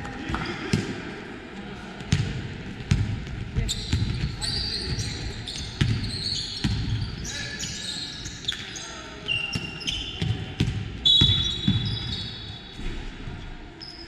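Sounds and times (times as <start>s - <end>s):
basketball bouncing on gym floor: 2.1s - 7.0s, 9.5s - 12.2s
sneakers squeaking on court: 2.9s - 12.8s.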